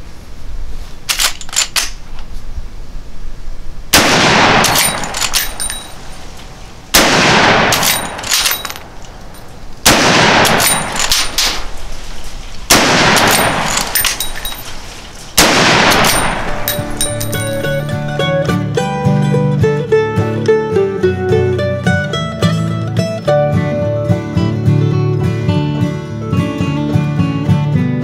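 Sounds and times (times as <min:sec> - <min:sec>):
rifle lever clicks: 0:01.1 - 0:02.0, 0:04.6 - 0:05.9, 0:07.7 - 0:09.2, 0:10.4 - 0:11.7, 0:13.2 - 0:14.6
rifle shots ringing: 0:03.9 - 0:18.1.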